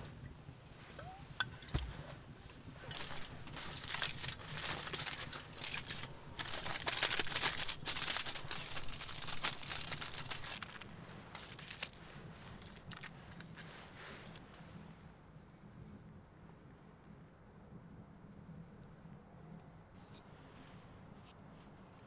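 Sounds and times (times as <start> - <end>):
aluminium foil crinkling: 2.8 - 14.4.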